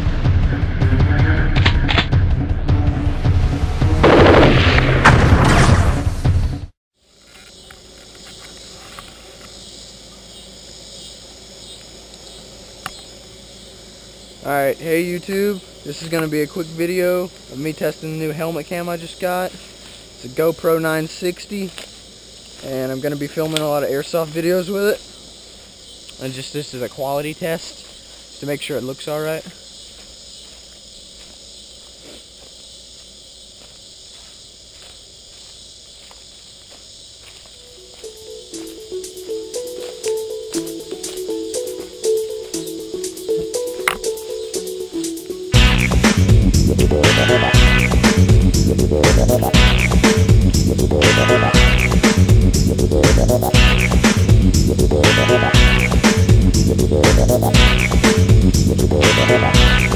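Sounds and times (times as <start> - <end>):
crickets and insects chirring: 6.9 - 59.9
footsteps on leaf litter: 18.3 - 25.8, 27.2 - 44.2.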